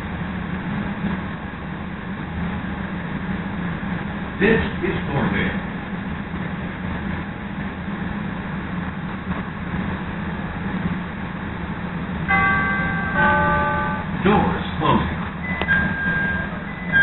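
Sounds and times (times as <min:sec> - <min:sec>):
rail car hum: 0:00.0 - 0:17.0
door chime note: 0:12.3 - 0:14.2, 0:15.5 - 0:17.0.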